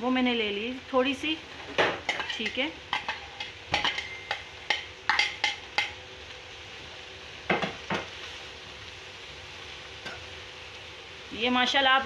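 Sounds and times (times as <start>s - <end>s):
metal spatula knocking on pan: 1.8s - 5.9s.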